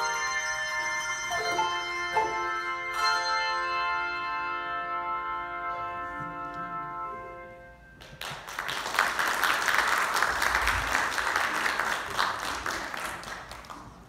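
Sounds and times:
congregation applauding: 8.0s - 14.0s.

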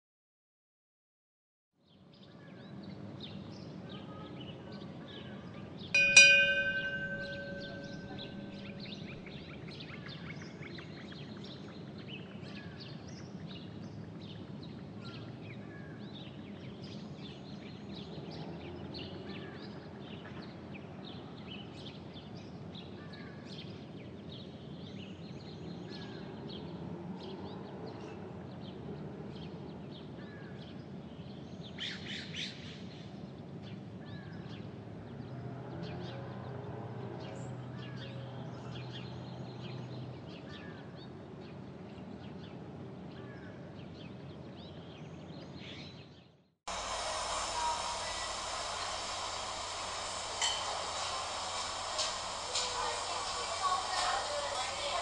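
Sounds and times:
loud chime ringing: 6.0s - 9.6s, 47.5s - 53.6s.

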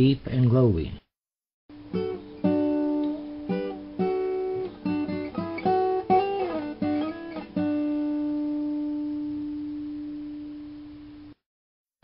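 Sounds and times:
plucked string instrument melody: 1.8s - 9.1s.

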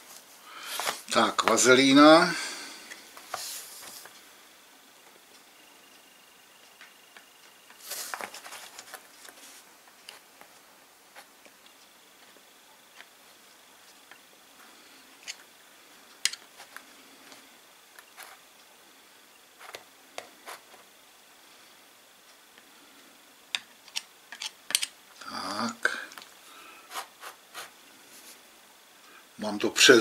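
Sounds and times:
rustling scrape: 0.0s - 1.1s, 3.2s - 4.1s, 7.8s - 10.3s.

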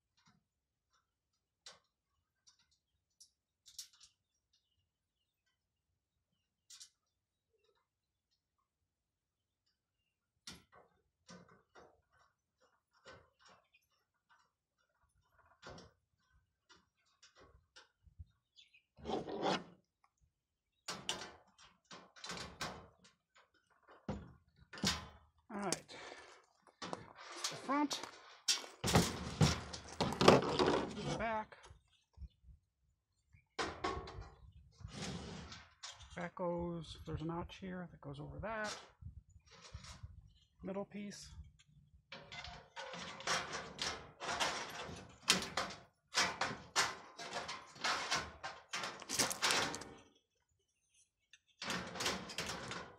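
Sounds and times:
sheet metal scraping: 19.0s - 19.7s, 34.8s - 35.9s
sheet metal clanking and rattling: 42.2s - 50.0s, 51.6s - 52.9s.

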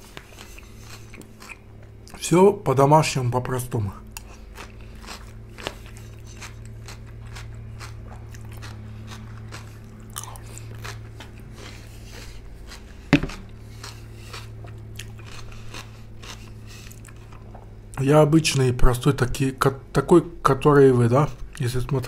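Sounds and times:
person chewing crunchy salad: 0.0s - 2.2s, 4.0s - 18.0s
steady low hum: 0.0s - 22.0s.

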